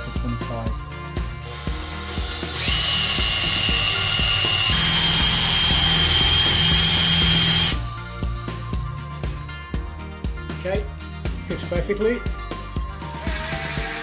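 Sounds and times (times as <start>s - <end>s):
cordless drill boring into wood: 1.5s - 7.8s.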